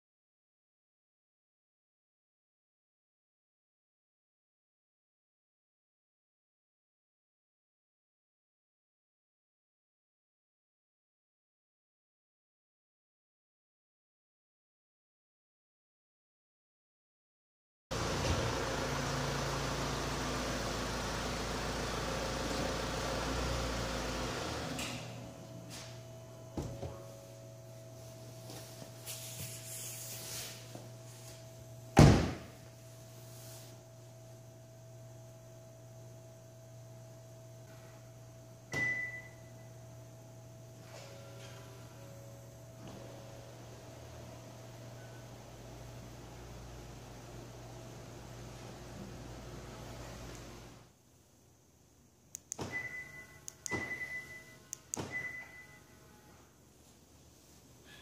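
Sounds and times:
short high beep: 38.7 - 39.7, 52.7 - 56.3.

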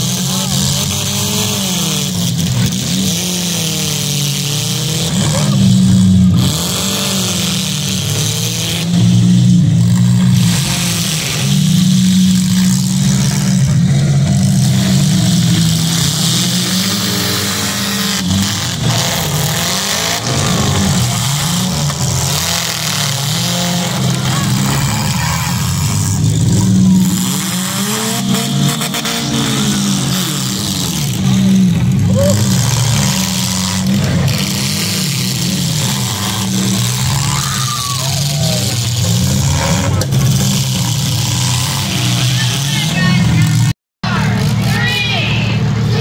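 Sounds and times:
car engines revving: 0.0 - 46.0.

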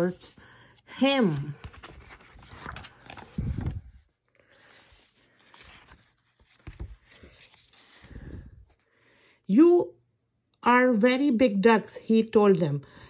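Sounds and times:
paper page rustling: 1.2 - 8.8.

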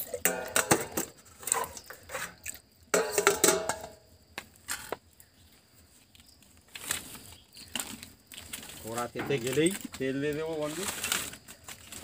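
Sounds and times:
metal cooking vessels clinking: 0.0 - 4.0.

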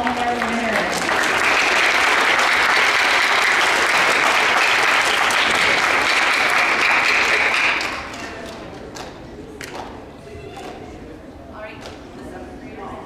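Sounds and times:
audience clapping: 0.0 - 9.9.

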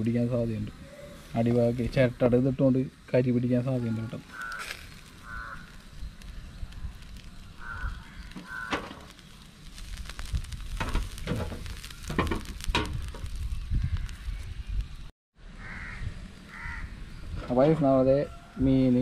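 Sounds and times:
fire crackling and popping: 0.0 - 15.1
fish sizzling on grill: 0.0 - 15.1.

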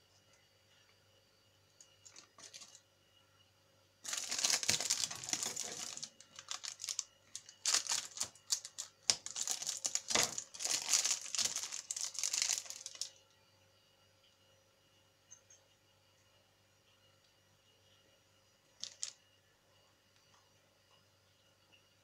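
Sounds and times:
faint wrapper rustles: 2.0 - 2.8, 4.0 - 13.2, 18.8 - 19.2
foil wrapper crinkling: 2.0 - 2.8, 4.0 - 13.1, 18.8 - 19.2.

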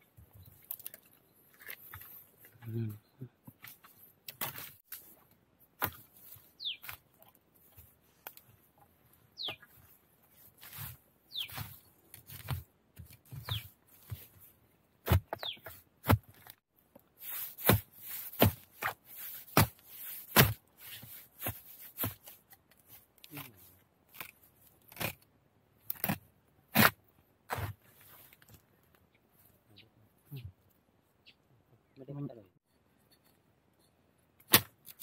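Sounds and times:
knife chopping bamboo: 15.0 - 15.4, 17.5 - 22.4, 25.9 - 27.8, 34.5 - 35.0.

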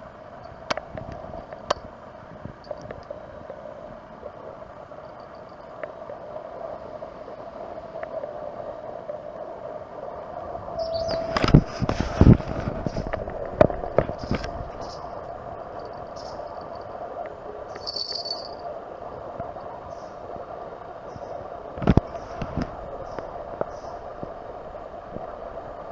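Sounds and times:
outdoor background hum: 0.0 - 25.9
faint high chirps: 17.7 - 18.6.

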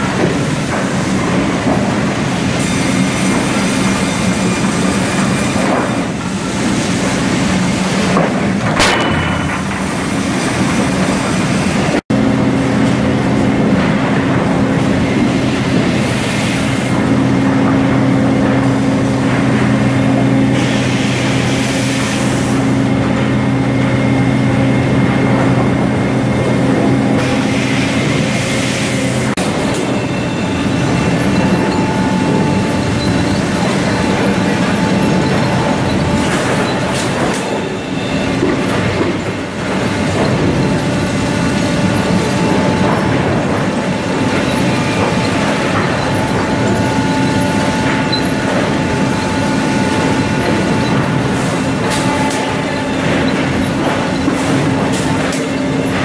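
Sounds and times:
lumber mill machinery running: 0.0 - 56.0
sharp metal clank: 8.7 - 10.2.

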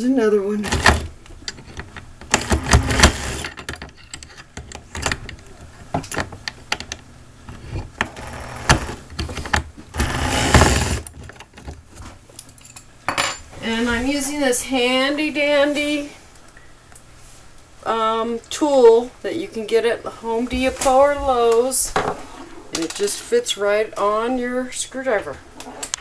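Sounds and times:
metal scraping: 7.5 - 11.1.

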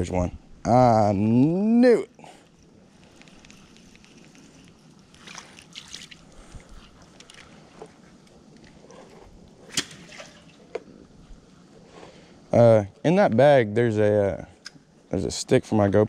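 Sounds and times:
small clicks and rustles: 2.4 - 9.6
soft water splashing: 2.6 - 11.4.

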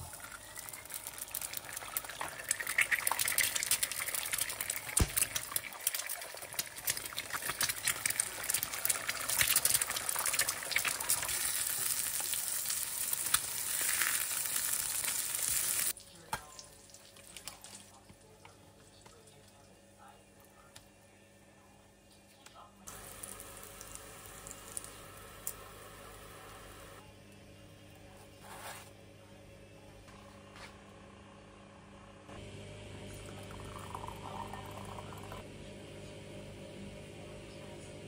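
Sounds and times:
eggs sizzling in oil: 0.0 - 17.6, 22.9 - 27.0.

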